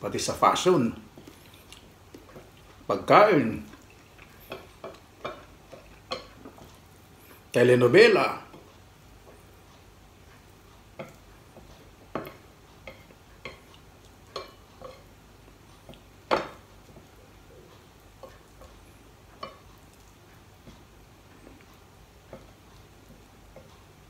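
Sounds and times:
chopsticks clicking on a plate: 0:10.4 - 0:15.1.

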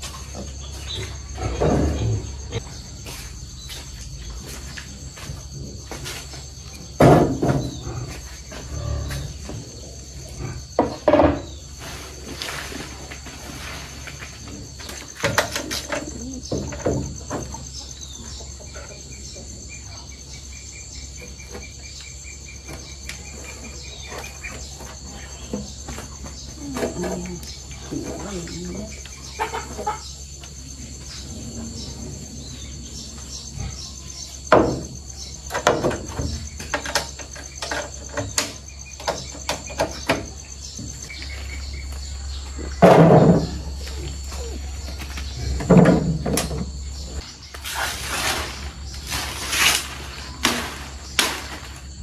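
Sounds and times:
insects chirring: 0:00.0 - 0:52.0
knocks and thuds: 0:06.9 - 0:08.0, 0:34.5 - 0:41.0, 0:42.6 - 0:43.8, 0:45.3 - 0:46.8.

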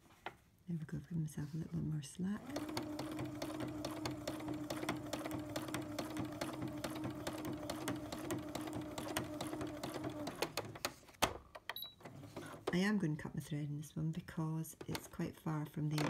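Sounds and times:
sewing machine stitching: 0:02.4 - 0:11.1, 0:11.8 - 0:13.0.

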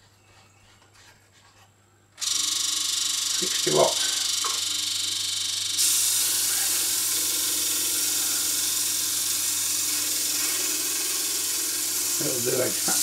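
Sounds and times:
disc sander running: 0:02.2 - 0:13.0
wood sanding hiss: 0:05.8 - 0:13.0.

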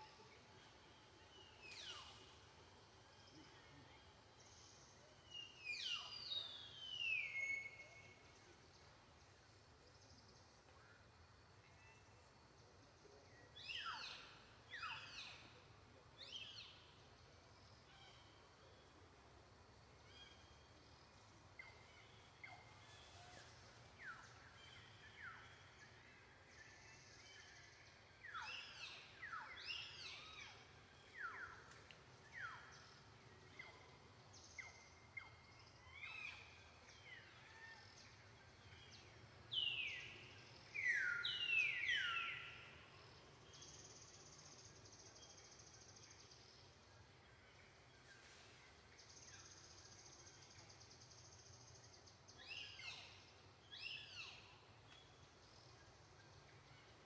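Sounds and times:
faint background noise: 0:00.0 - 0:57.0.

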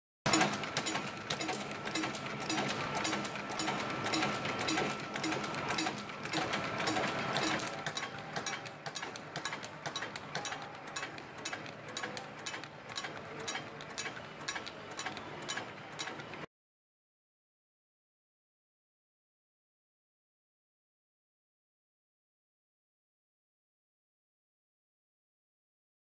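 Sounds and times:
wrapping machine clattering: 0:00.3 - 0:16.3.

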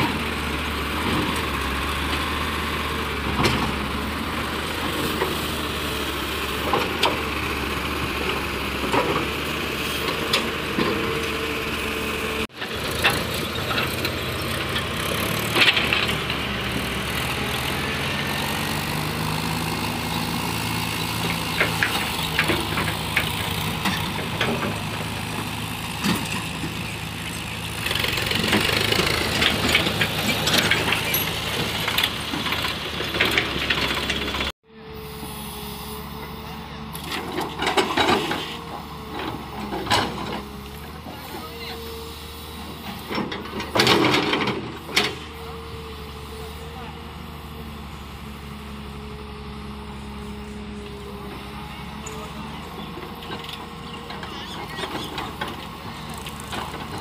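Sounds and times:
trailer rattling and clattering: 0:00.0 - 0:34.5, 0:36.9 - 0:41.6, 0:42.4 - 0:45.7, 0:51.4 - 0:57.0
excavator diesel engine running: 0:00.0 - 0:57.0
tractor diesel engine: 0:00.0 - 0:57.0.

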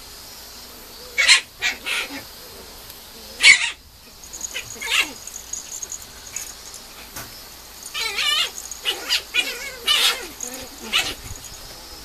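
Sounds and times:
puppy barking: 0:04.4 - 0:07.2, 0:07.9 - 0:11.5.

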